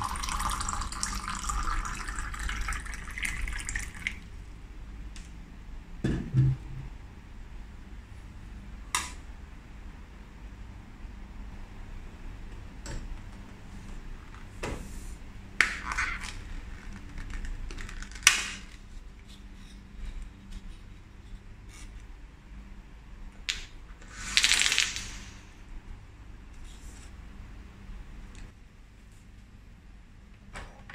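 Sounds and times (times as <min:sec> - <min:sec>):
capsules clattering onto wooden table: 0:24.3 - 0:25.2.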